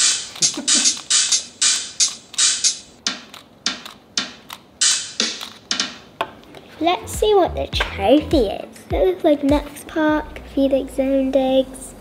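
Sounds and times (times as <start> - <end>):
electronic drum hits: 7.0 - 9.7.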